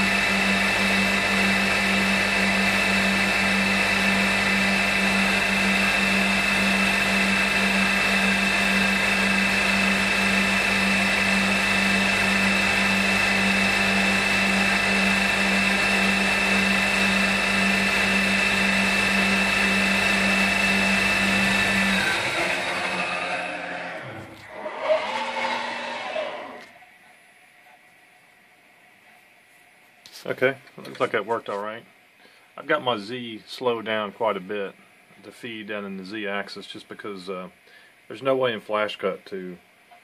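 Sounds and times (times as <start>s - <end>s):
milling machine spindle whining: 0.0s - 26.8s.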